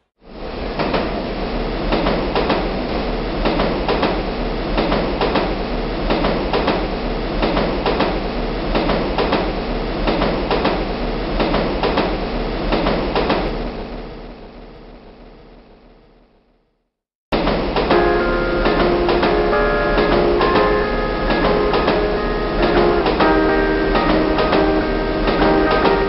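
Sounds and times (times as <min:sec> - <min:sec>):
metro train rumbling: 0:00.3 - 0:14.6, 0:17.4 - 0:26.0
wheels clacking over rail joints: 0:17.4 - 0:26.0.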